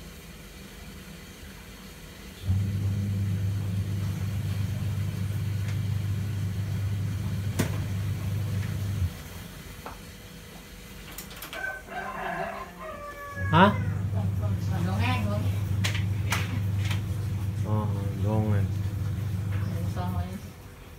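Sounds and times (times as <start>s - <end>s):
kitchen appliance humming: 2.2s - 10.7s, 13.5s - 20.9s.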